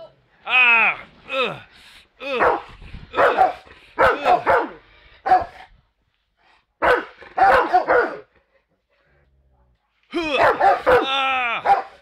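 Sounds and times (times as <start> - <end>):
dogs barking angrily: 2.4 - 5.7, 6.8 - 8.4, 10.3 - 12.0.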